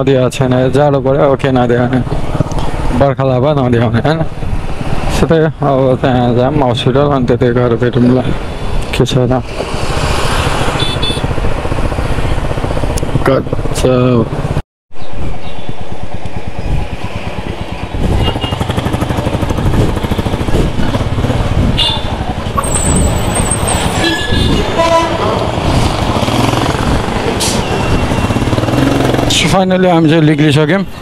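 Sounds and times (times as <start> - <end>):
motorcycle engine running: 9.6 - 14.6, 15.6 - 29.5
vehicle horn toot: 10.8 - 11.3, 18.2 - 18.7, 21.8 - 22.2, 24.0 - 25.2.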